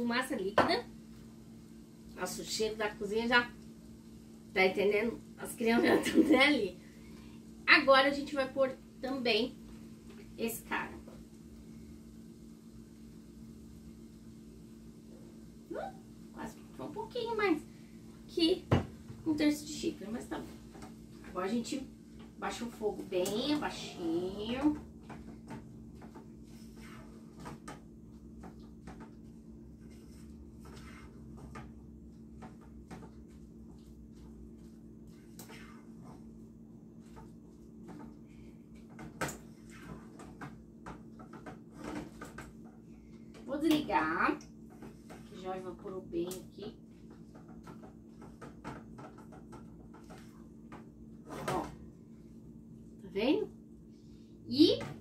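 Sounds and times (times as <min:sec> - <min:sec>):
wooden spoon scraping saucepan: 0:29.8 - 0:31.4.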